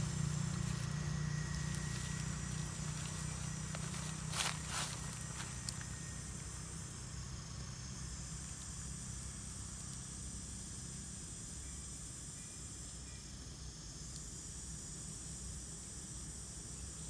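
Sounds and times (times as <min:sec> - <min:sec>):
low background rumble: 0:00.0 - 0:11.4
insect chorus buzzing: 0:00.0 - 0:17.0.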